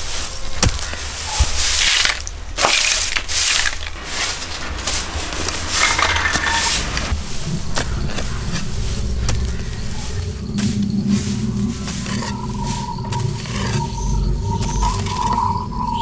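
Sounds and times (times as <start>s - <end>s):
broom sweeping tiles: 0.0s - 16.0s
low steady hum: 3.6s - 16.0s.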